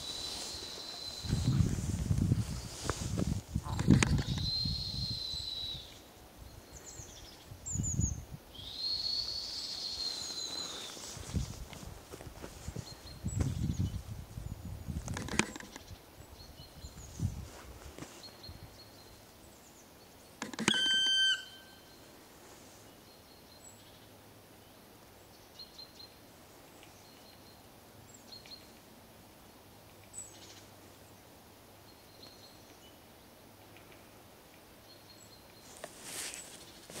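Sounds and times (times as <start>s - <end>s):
faint small bird chirps: 4.0s - 11.1s
woodpecker call: 20.4s - 21.9s
short rustling: 35.7s - 37.0s.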